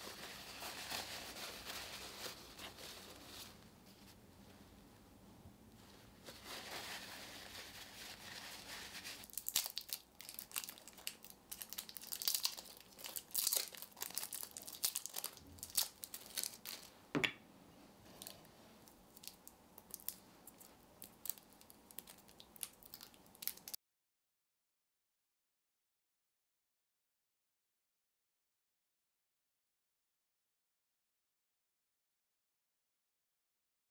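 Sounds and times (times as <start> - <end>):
plastic wrapping crinkling: 0.0 - 4.0, 5.9 - 17.0, 18.1 - 23.8.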